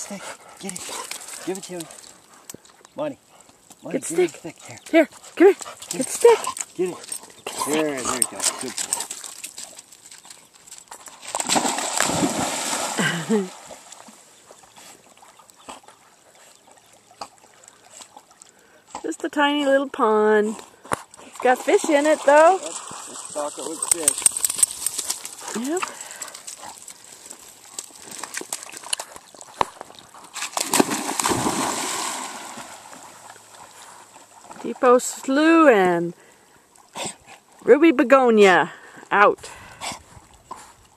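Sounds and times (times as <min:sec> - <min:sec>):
dog sloshing while swimming: 0:10.9 - 0:18.5, 0:20.7 - 0:34.6
dog splashing into water: 0:11.2 - 0:14.2, 0:30.3 - 0:33.5
water churning: 0:11.4 - 0:14.1, 0:30.6 - 0:33.8.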